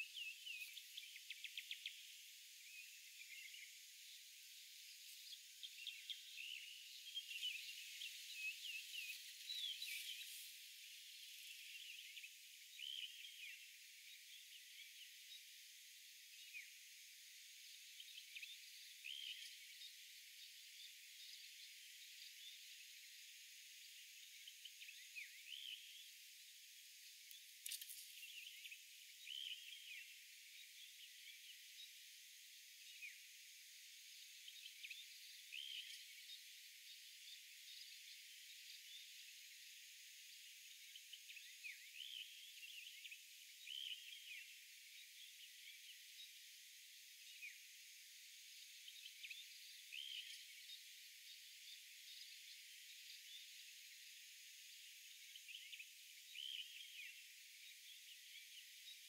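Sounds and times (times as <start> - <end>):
insect hum: 0.0 - 59.0.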